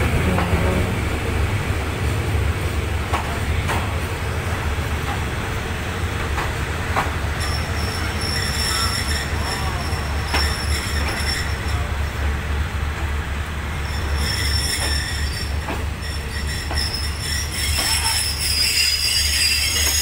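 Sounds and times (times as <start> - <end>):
train rumble: 0.0 - 20.0
train wheels squealing on rails: 5.9 - 20.0
wheels clacking over rail joints: 6.1 - 12.0, 13.7 - 20.0.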